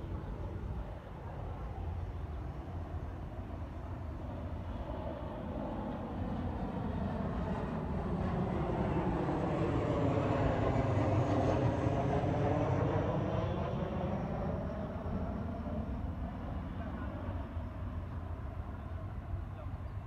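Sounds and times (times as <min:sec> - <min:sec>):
jet engine rumble: 0:00.0 - 0:20.0.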